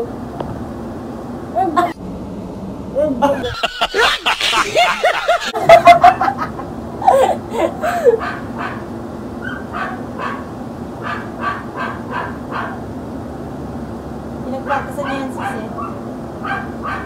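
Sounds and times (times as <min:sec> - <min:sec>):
dog yelping: 0:08.0 - 0:12.8, 0:14.7 - 0:17.0
dog barking: 0:08.2 - 0:12.8, 0:14.7 - 0:17.0.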